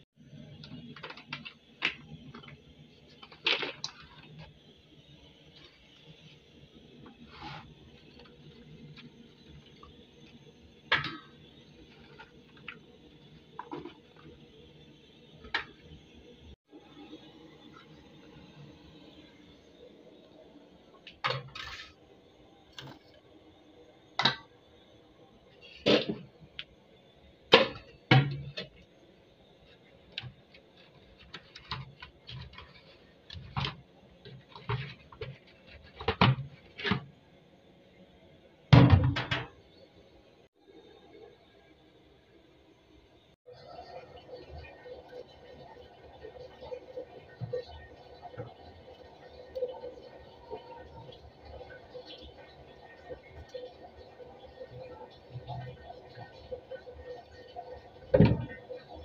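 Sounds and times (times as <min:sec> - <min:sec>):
plastic basins and cup clattering: 0:30.9 - 0:37.1, 0:58.1 - 0:58.7.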